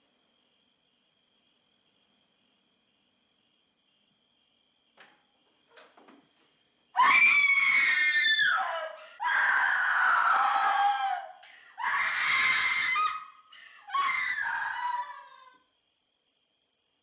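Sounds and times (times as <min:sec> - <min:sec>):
woman screaming: 0:07.0 - 0:13.3, 0:13.9 - 0:15.6.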